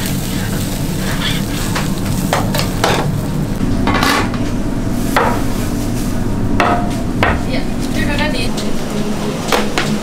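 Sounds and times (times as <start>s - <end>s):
low kitchen hum: 0.0s - 10.0s.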